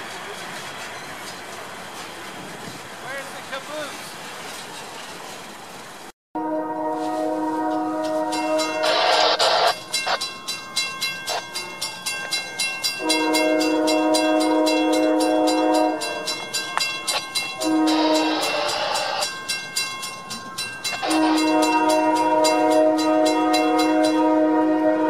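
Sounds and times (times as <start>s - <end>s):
locomotive air horn blasts: 6.4s - 9.8s, 13.0s - 16.4s, 17.6s - 19.3s, 21.0s - 25.0s
crossing signal bell clanging: 6.7s - 25.0s.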